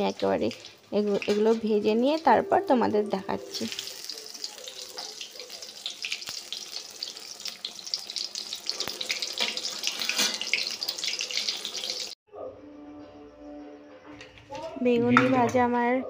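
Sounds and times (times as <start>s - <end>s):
eggplant deep-frying in oil: 0.0s - 12.2s.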